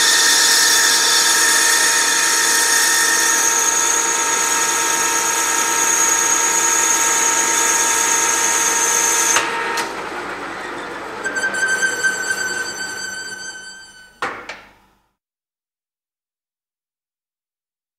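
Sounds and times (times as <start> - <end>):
lathe machining whine: 0.0 - 14.3
thin squealing tone: 11.2 - 14.2.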